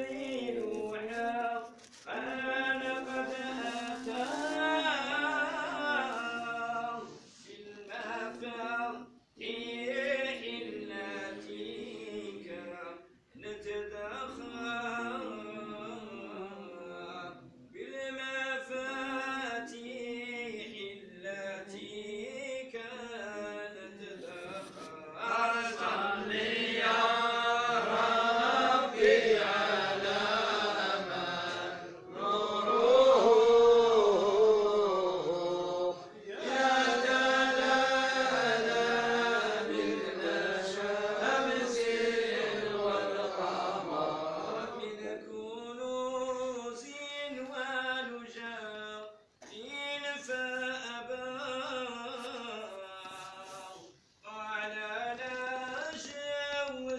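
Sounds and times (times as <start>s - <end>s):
man chanting: 0.0s - 31.4s, 44.8s - 56.9s.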